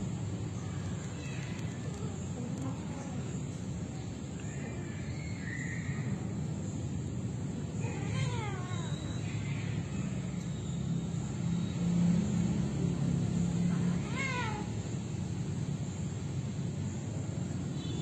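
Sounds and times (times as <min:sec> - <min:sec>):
cat yowling: 0:07.8 - 0:09.2.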